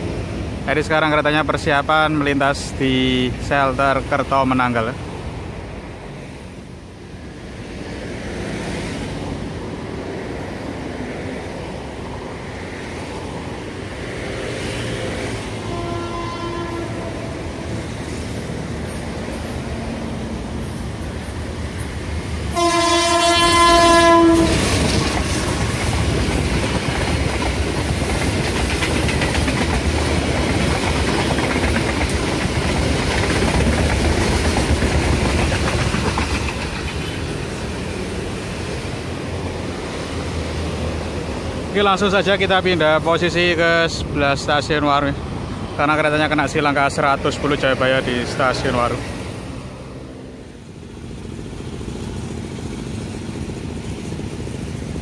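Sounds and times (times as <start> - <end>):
locomotive horn blast: 15.6 - 17.7, 22.5 - 24.8
train wheels clacking over rail joints: 24.2 - 38.2.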